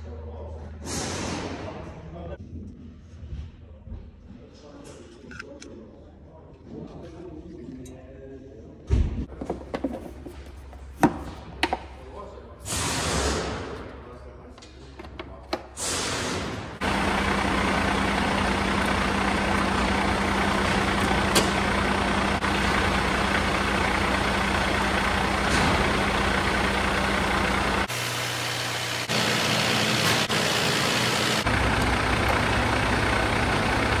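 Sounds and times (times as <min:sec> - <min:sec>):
diesel truck engine idling: 0:15.8 - 0:34.0.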